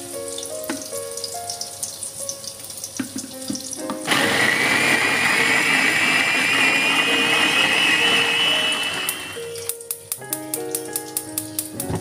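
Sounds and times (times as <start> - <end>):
electric food chopper whining: 4.1 - 9.6.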